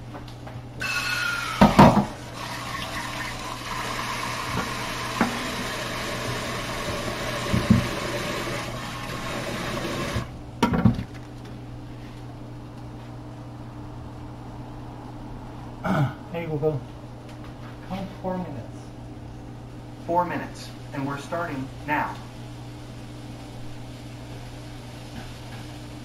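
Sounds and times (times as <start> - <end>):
tap running into sink: 4.4 - 8.6
knocks and clatters at sink: 7.4 - 8.0.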